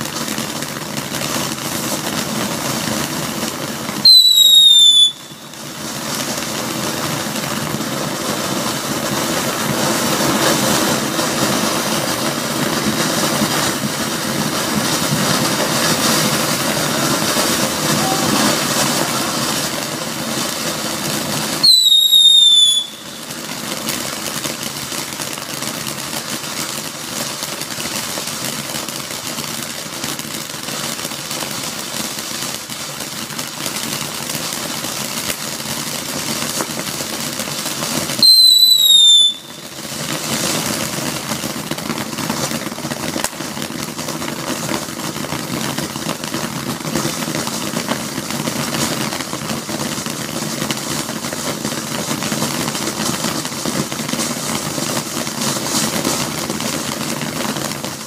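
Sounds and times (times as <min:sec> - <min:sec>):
firework whistle: 0:00.0 - 0:29.7, 0:36.0 - 0:44.8
firework fountain hissing: 0:00.0 - 0:58.0.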